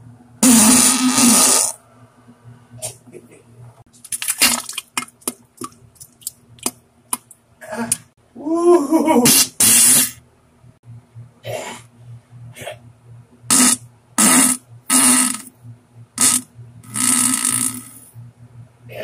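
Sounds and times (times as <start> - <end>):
fart sounds: 0.4 - 1.8, 9.2 - 10.2, 13.5 - 15.6, 16.2 - 18.1
faint low hum: 10.2 - 19.0.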